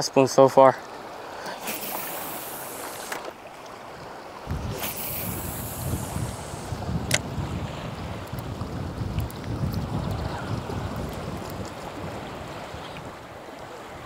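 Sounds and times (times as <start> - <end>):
rushing water: 0.0 - 14.0
wind buffeting microphone: 4.4 - 14.0.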